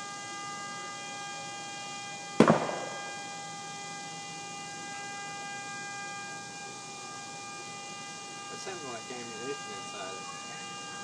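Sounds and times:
truck horn sounding steadily: 0.0 - 11.0
sharp bang from fire: 2.4 - 3.2.

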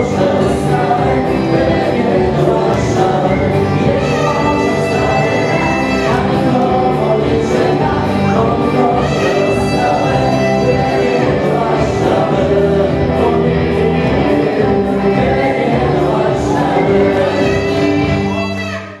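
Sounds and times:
dance band playing upbeat song: 0.0 - 19.0
person singing: 0.0 - 19.0.

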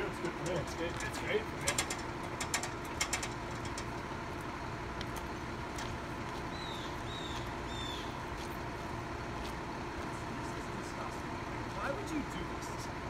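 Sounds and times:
low mechanical hum and rumble: 0.0 - 13.0
bird chirping: 6.5 - 8.2.

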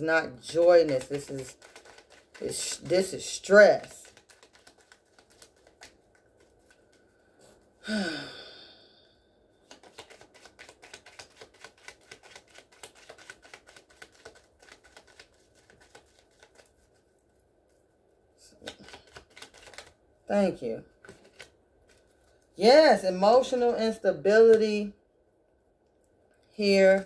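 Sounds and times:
cards being shuffled: 0.2 - 7.6, 9.6 - 17.7, 18.5 - 20.0, 21.0 - 22.5.

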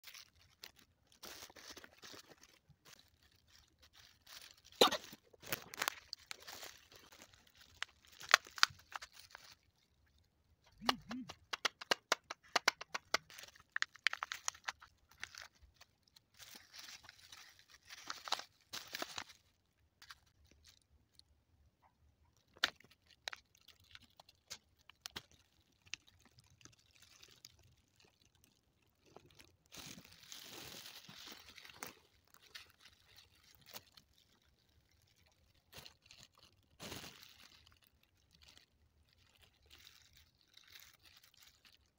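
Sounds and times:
wafer cracking and crunching: 0.0 - 9.7, 10.7 - 20.8
thin plastic crinkling: 0.0 - 41.9.

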